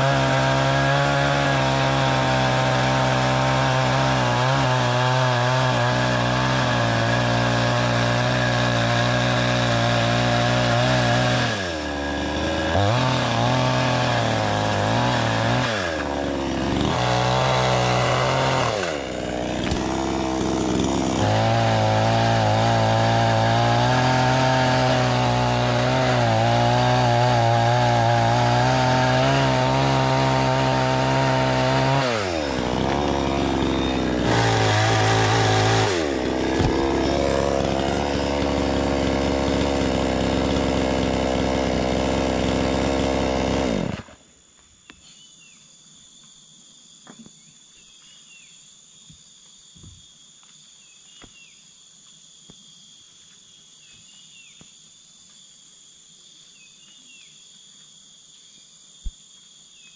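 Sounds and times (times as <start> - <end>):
chainsaw cutting wood: 0.0 - 44.4.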